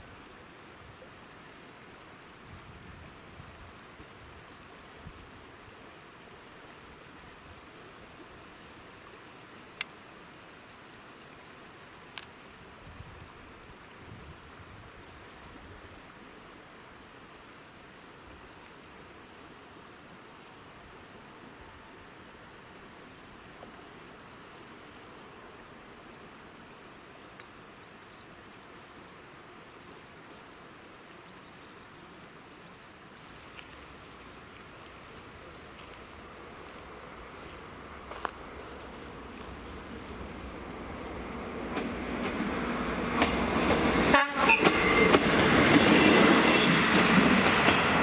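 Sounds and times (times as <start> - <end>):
steady outdoor hiss: 0.0 - 48.0.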